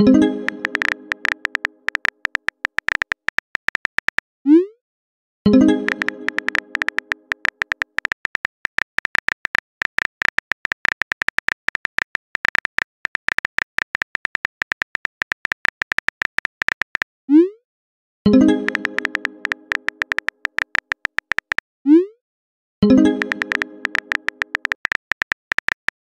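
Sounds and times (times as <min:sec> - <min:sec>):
phone keyboard key clicks: 0:00.5 - 0:04.3, 0:05.9 - 0:17.1, 0:18.7 - 0:21.6, 0:23.2 - 0:26.0.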